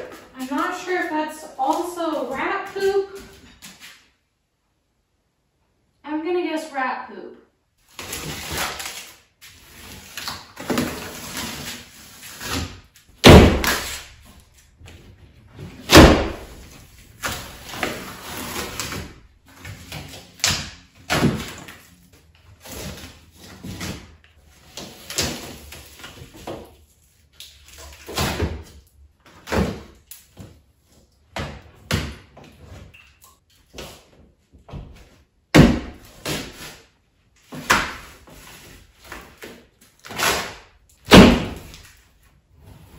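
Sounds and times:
drywall cracking and crumbling: 0:07.8 - 0:30.6, 0:35.0 - 0:42.2.

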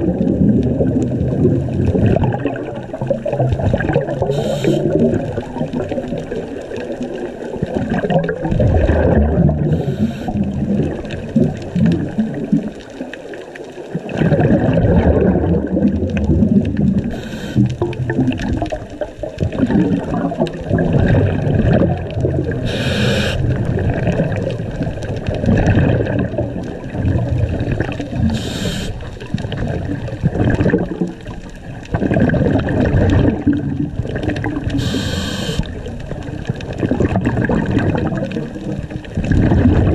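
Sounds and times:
exhaled bubbles underwater: 0:00.0 - 0:39.9
regulator hiss: 0:04.3 - 0:05.0, 0:09.7 - 0:10.4, 0:17.1 - 0:17.8, 0:22.6 - 0:23.4, 0:28.2 - 0:29.1, 0:34.8 - 0:35.7.

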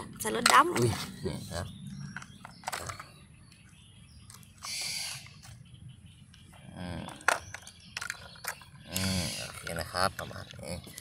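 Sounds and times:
plastic toys knocking together: 0:00.2 - 0:01.0, 0:02.2 - 0:03.1, 0:07.1 - 0:08.7.

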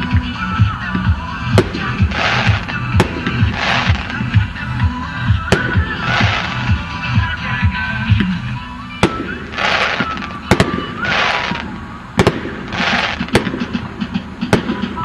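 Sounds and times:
fireworks bangs: 0:01.5 - 0:04.5, 0:05.4 - 0:07.0, 0:09.0 - 0:15.0
fireworks hissing: 0:01.5 - 0:07.2, 0:09.0 - 0:15.0.

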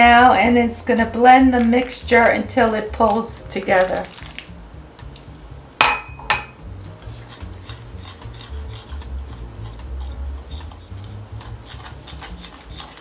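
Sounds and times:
glass clinks: 0:05.8 - 0:06.6
fork scraping glass bowl: 0:06.8 - 0:13.0.

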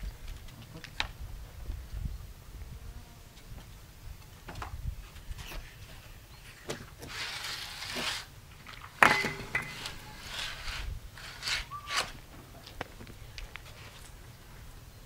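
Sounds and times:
sharp metallic clink: 0:09.0 - 0:10.3.

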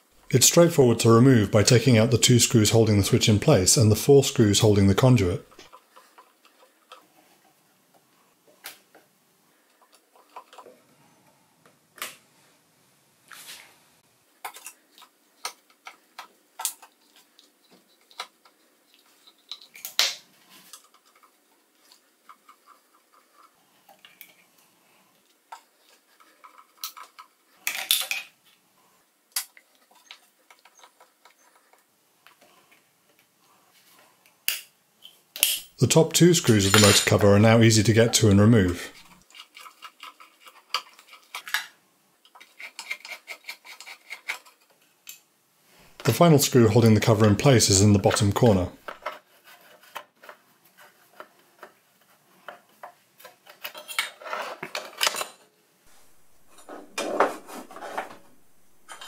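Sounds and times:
metal parts rattling: 0:36.4 - 0:37.4, 0:57.8 - 0:59.0
screwdriver metal clicks and scrapes: 0:42.3 - 0:45.2.

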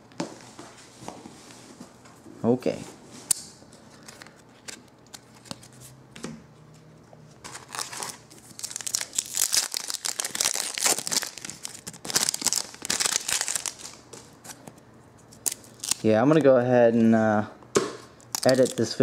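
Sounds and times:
foil wrapper tearing and crinkling: 0:07.5 - 0:14.0, 0:15.4 - 0:16.1, 0:18.4 - 0:18.9.

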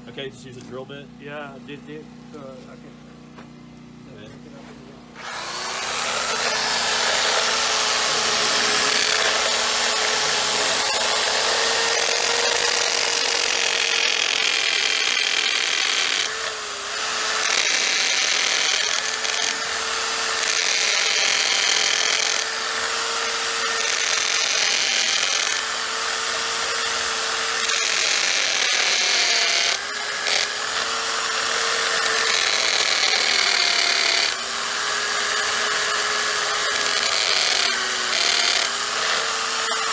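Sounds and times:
electric drill boring into masonry: 0:05.1 - 0:39.9.

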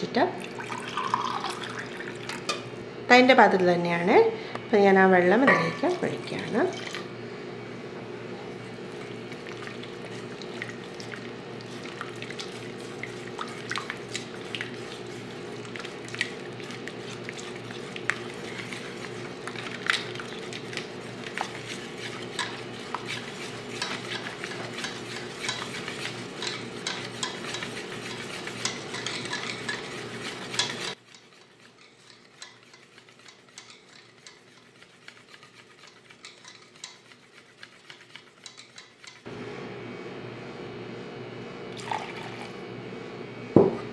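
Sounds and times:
whisk clicking against steel bowl: 0:09.3 - 0:39.3.

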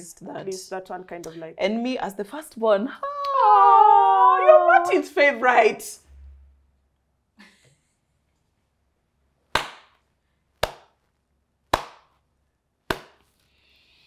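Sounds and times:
slow handclaps: 0:09.6 - 0:10.0, 0:10.6 - 0:11.0, 0:11.7 - 0:12.1.

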